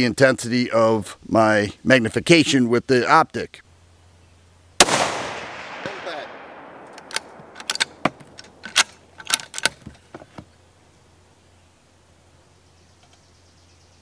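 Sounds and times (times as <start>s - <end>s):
rifle shot: 4.8s - 9.1s
rifle bolt metallic clicks: 6.8s - 10.0s.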